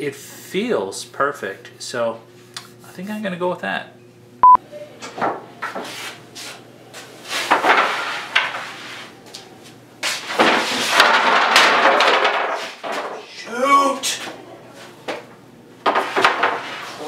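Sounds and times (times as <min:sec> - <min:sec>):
board clattering and scraping: 0:07.4 - 0:08.8, 0:10.0 - 0:13.3, 0:15.8 - 0:17.0.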